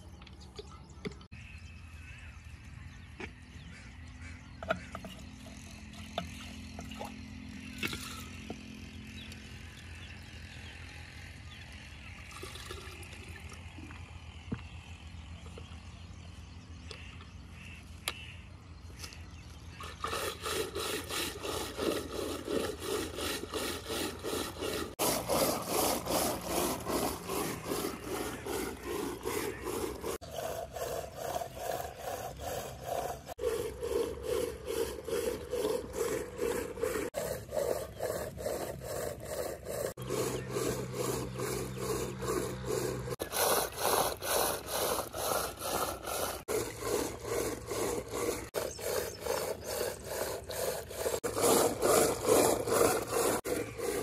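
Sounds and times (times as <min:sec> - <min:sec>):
rough rubbing strokes: 0:19.7 - 0:54.0.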